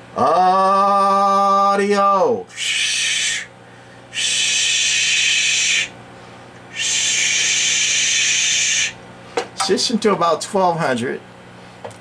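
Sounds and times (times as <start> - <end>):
faint hum: 0.0 - 12.0
man hissing into microphone: 2.5 - 3.5, 4.2 - 5.9, 6.7 - 9.0.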